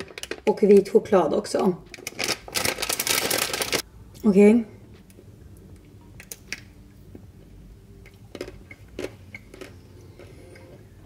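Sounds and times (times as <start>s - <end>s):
chocolate coating cracking: 0.0s - 1.0s, 1.9s - 3.8s.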